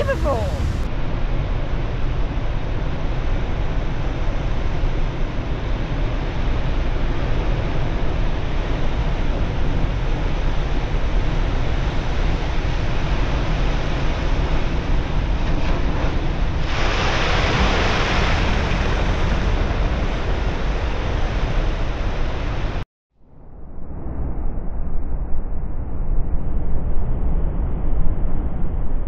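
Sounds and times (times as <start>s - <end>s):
wind rumble on microphone: 0.0s - 29.0s
surf breaking over rocks: 15.5s - 22.7s
whitewater crash: 16.6s - 21.7s.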